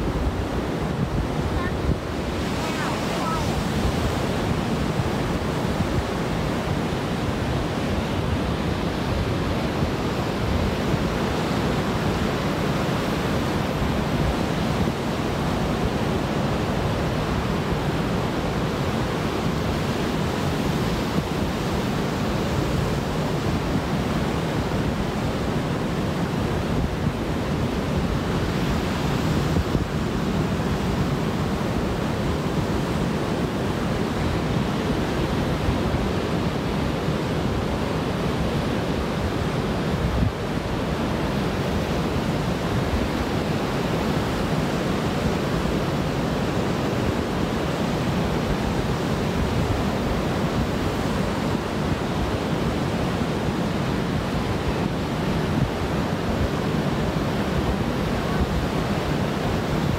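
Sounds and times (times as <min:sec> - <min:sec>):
surf breaking on beach: 0:00.0 - 0:07.2.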